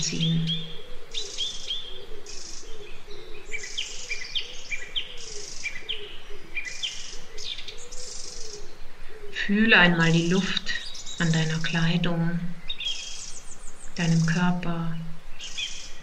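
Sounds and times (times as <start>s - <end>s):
hissing trill-like bird calls: 0.0s - 9.3s
bird chirping: 0.0s - 16.0s.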